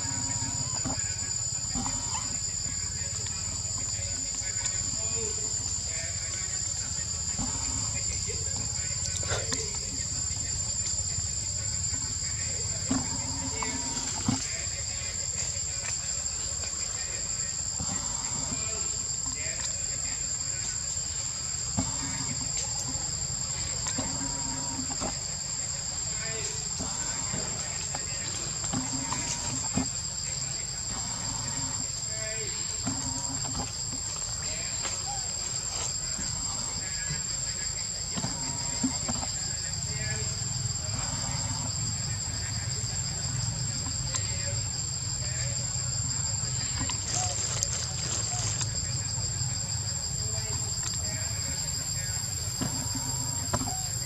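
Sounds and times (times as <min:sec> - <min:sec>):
insects buzzing: 0:00.0 - 0:54.0.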